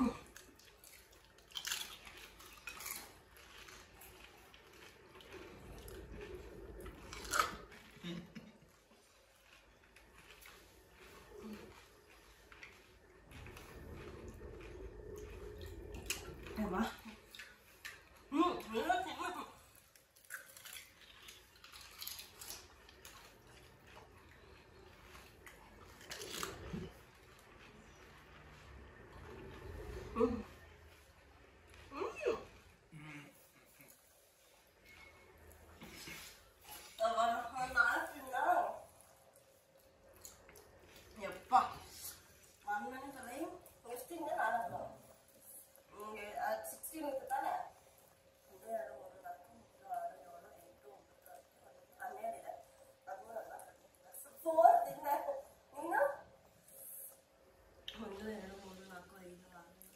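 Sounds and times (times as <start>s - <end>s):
crisp food crunching and chewing: 0.1s - 18.3s, 19.6s - 31.0s, 38.9s - 42.6s.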